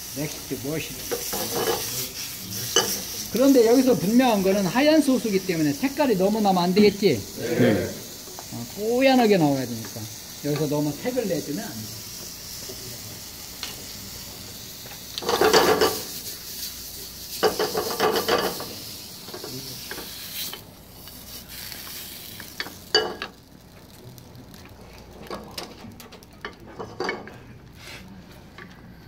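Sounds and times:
food sizzling in a frying pan: 0.0 - 28.3
stirring and scraping in a pan: 1.0 - 3.5, 15.2 - 23.4.

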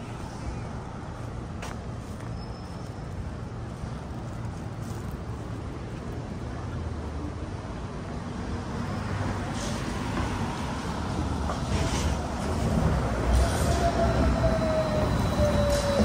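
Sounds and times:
street traffic: 0.0 - 16.0
electric trolleybus motor whine: 13.1 - 16.0.

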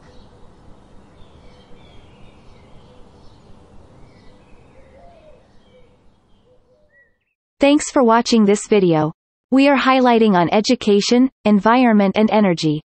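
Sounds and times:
low background noise: 0.0 - 6.6
faint birds chirping: 0.0 - 7.4.

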